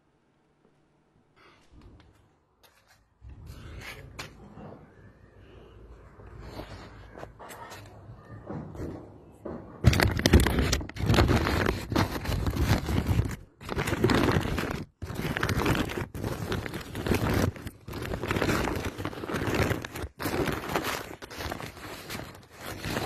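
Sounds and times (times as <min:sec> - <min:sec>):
rice and plastic sack rustling: 0:09.8 - 0:23.0.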